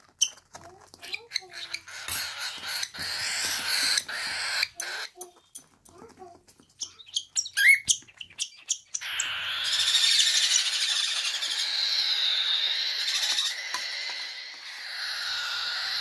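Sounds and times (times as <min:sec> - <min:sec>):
parrot chicks begging calls: 0:00.9 - 0:05.4, 0:06.8 - 0:16.0.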